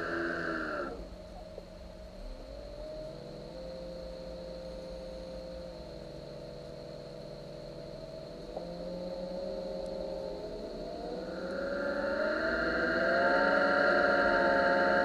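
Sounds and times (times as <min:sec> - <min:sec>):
electric thrusters whining hum: 0:08.4 - 0:15.0.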